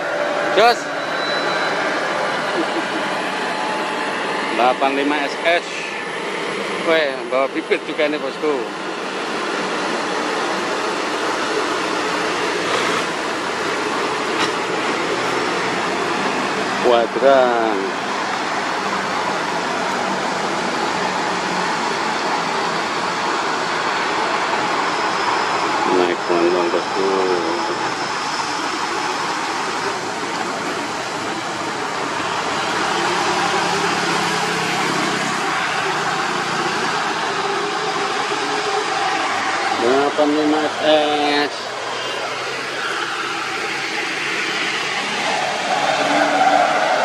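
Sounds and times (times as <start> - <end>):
diesel truck engine under load: 0.0 - 25.9
tyres on wet road: 0.0 - 47.0.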